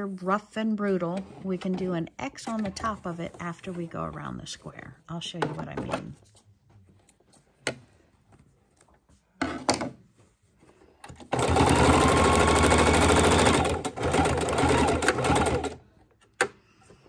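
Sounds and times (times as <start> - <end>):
electric sewing machine running: 11.3 - 15.8.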